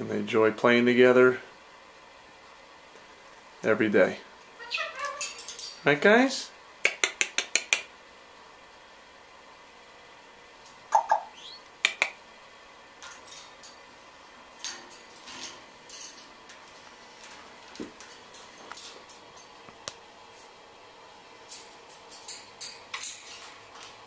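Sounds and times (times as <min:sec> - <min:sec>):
parrot clicking on cage bars: 0:06.8 - 0:07.9, 0:11.8 - 0:12.2.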